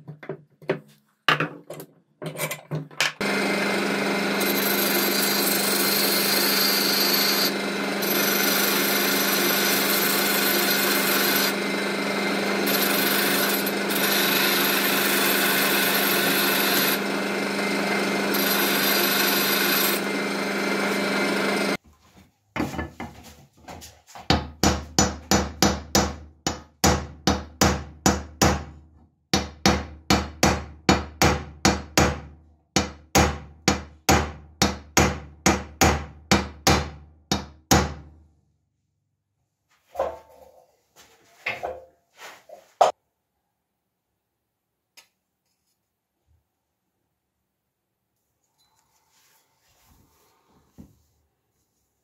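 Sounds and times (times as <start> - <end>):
bench grinder grinding metal: 3.2 - 21.8.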